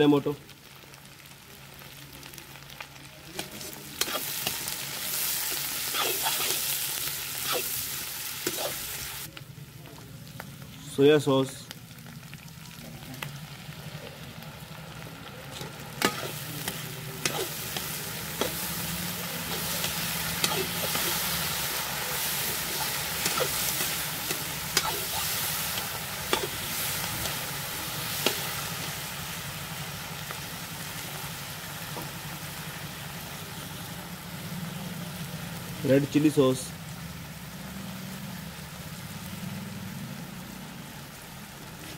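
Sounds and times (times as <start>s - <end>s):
vegetables sizzling in iron pan: 0.0s - 41.9s
skimmer scraping vegetables: 15.6s - 27.4s.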